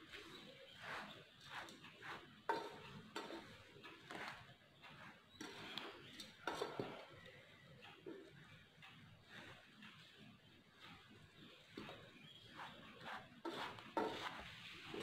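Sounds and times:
metal spoon scraping a steel bowl: 0.3 - 7.1, 11.8 - 15.0.

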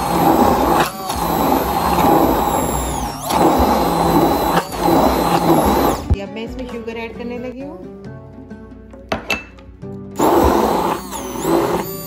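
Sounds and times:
immersion blender running: 0.0 - 6.2, 10.2 - 12.0.

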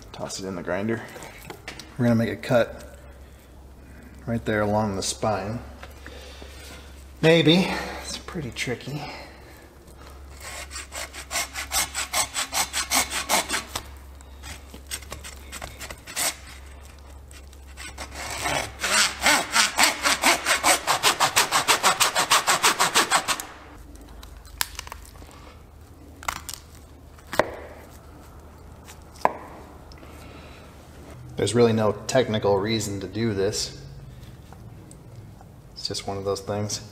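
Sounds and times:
hand saw rasping through bone: 10.3 - 23.5.

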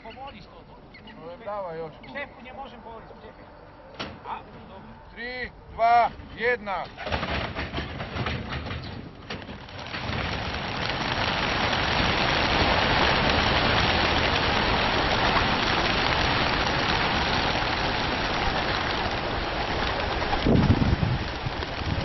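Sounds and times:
pigeon wingbeats clattering: 6.9 - 22.0.

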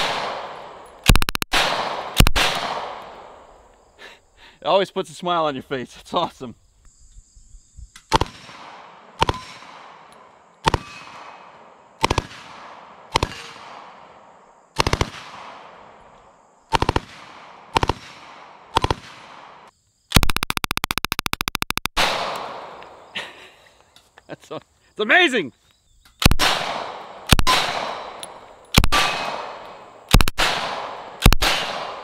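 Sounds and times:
gunshot echo: 0.0 - 3.2, 22.0 - 22.8, 26.2 - 28.2, 28.8 - 32.0
submachine gun firing bursts: 12.0 - 12.5, 14.8 - 15.4, 16.7 - 19.3, 26.2 - 28.0, 28.8 - 32.0.

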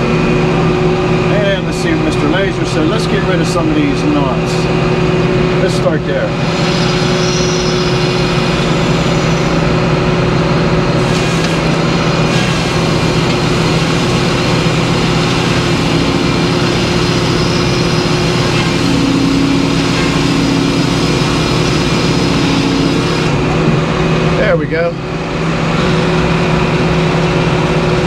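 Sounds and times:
sawmill running: 0.0 - 28.0
steady hum: 0.0 - 28.0
circular saw blade cutting log: 11.0 - 23.4.

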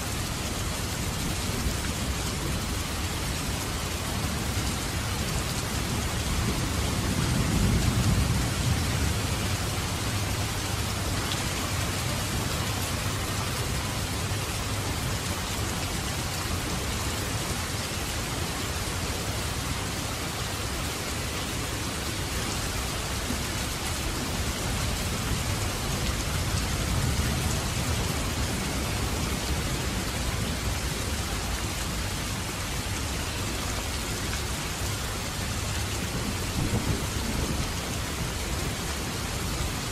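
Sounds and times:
steady rain: 0.0 - 39.9
thunder rumble: 5.7 - 13.4.

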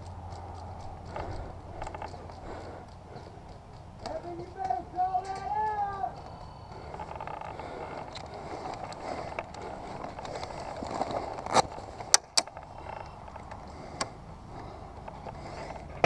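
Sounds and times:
sharp clicks or snaps: 0.0 - 10.3.

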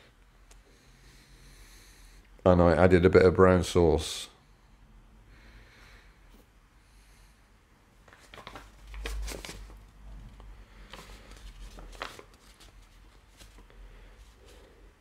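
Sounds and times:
rustling: 8.0 - 9.9, 10.8 - 14.9.

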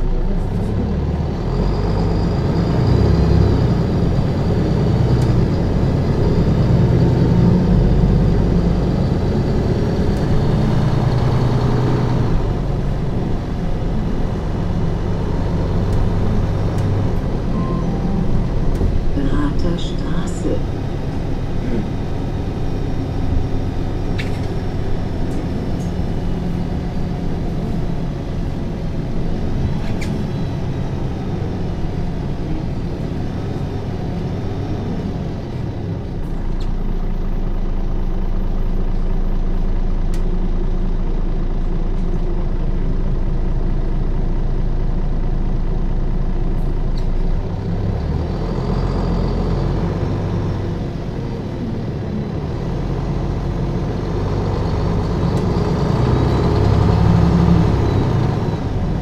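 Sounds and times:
bus diesel engine running: 0.0 - 59.0.

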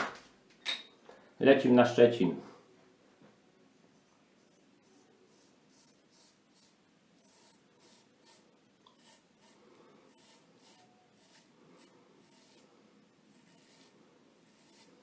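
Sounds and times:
straight razor scraping stubble: 4.4 - 12.7, 13.3 - 15.0.

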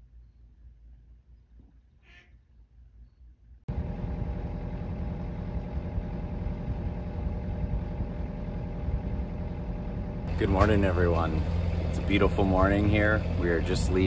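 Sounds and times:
boat engine running: 3.7 - 14.0.

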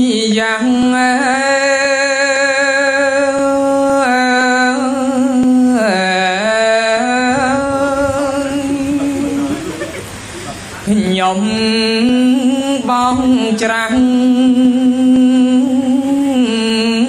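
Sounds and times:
person chanting in long notes: 0.0 - 10.0, 10.8 - 17.0.

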